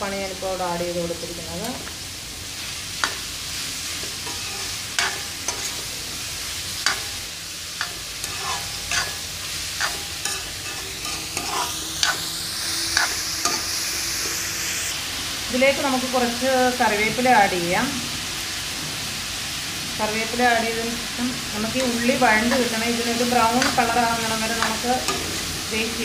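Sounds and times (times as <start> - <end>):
onions sizzling in oil: 0.0 - 26.0
steel ladle scraping pan: 4.0 - 5.9, 7.8 - 13.7.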